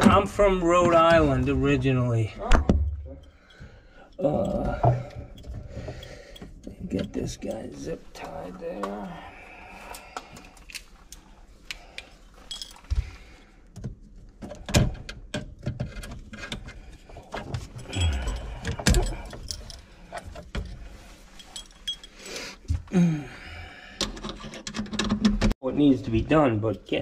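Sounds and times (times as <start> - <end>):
tools and parts clattering: 2.8 - 9.0, 11.9 - 22.9, 24.0 - 25.6.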